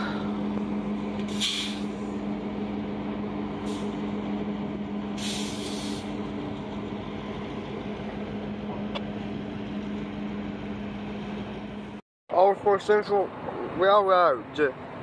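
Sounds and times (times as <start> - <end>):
engine idling: 0.0 - 12.0
short hiss of air: 1.3 - 2.0, 5.2 - 6.1.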